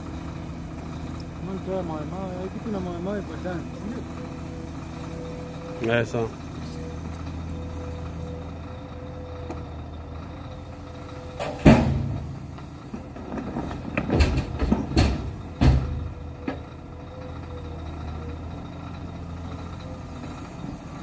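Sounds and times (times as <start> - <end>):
machine engines running: 0.0 - 21.0
rocks dumped into truck body: 13.2 - 16.0.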